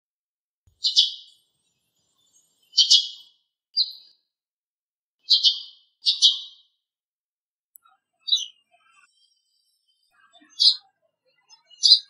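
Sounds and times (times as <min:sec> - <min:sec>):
sparrow chirping: 0:00.7 - 0:01.4, 0:02.0 - 0:04.2, 0:05.2 - 0:06.7, 0:08.2 - 0:09.1, 0:10.1 - 0:12.0.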